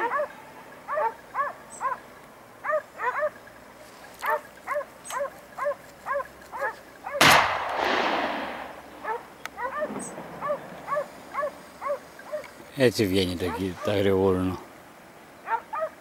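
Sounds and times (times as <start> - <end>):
dogs barking and yelping: 0.0 - 7.3, 9.0 - 12.6, 13.3 - 14.1, 15.4 - 16.0
gunshot with long echo: 7.2 - 9.0, 9.8 - 10.9.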